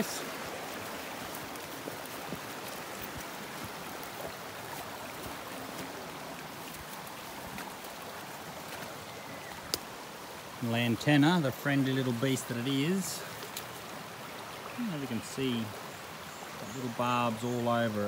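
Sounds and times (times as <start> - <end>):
creek water flowing: 0.0 - 18.0
faint clicks: 9.6 - 9.9.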